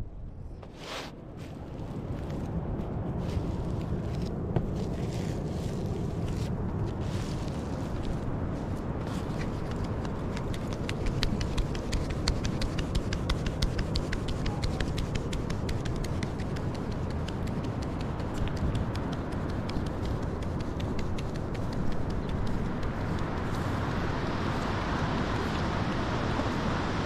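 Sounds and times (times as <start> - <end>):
sieve ticking and tapping: 9.8 - 23.5.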